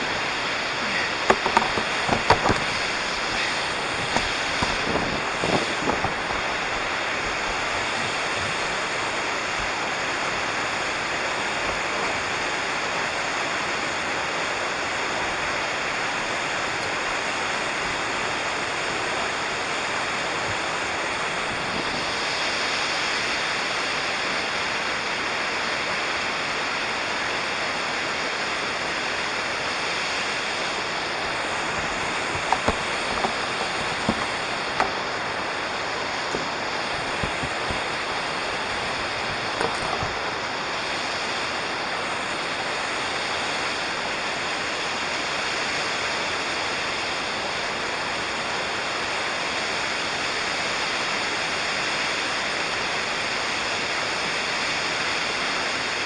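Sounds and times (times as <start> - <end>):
waterfall rushing: 0.0 - 25.2, 28.9 - 46.8.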